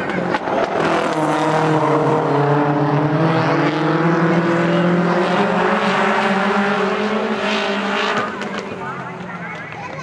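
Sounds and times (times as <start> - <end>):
racing car engines running hard: 0.0 - 10.0.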